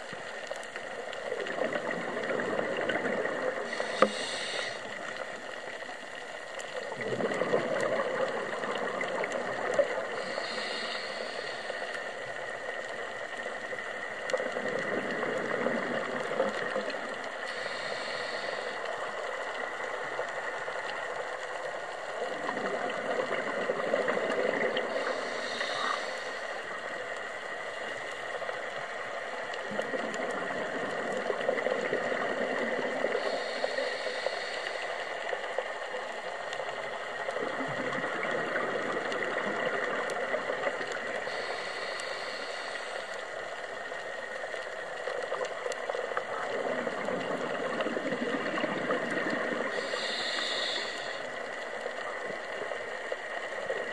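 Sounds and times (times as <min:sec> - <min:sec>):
gurgling exhaled bubbles: 0:01.1 - 0:05.6, 0:06.6 - 0:12.4, 0:13.4 - 0:19.2, 0:22.1 - 0:27.7, 0:29.5 - 0:44.0, 0:44.6 - 0:53.9
regulator inhalation hiss: 0:03.6 - 0:05.8, 0:09.1 - 0:12.8, 0:17.3 - 0:19.9, 0:24.5 - 0:27.1, 0:33.0 - 0:35.6, 0:41.1 - 0:44.0, 0:49.6 - 0:51.6.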